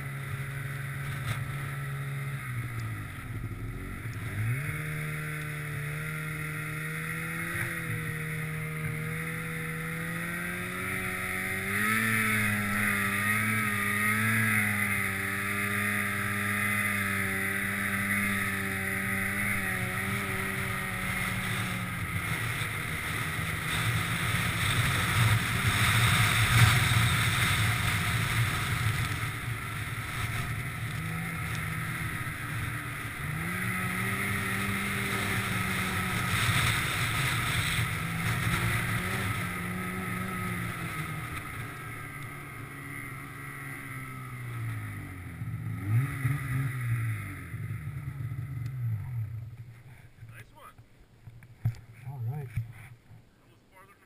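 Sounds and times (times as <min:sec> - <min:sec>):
snowmobile engine under throttle: 0:00.0 - 0:50.8, 0:51.5 - 0:54.0.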